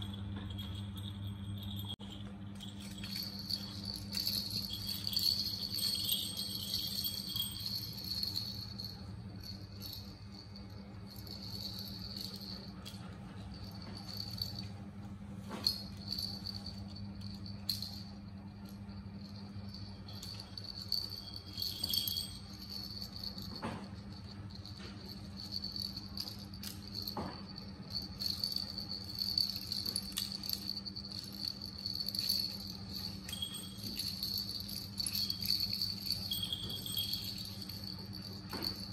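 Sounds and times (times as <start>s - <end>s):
low hum: 0.0s - 38.9s
small bells jingling: 0.0s - 38.9s.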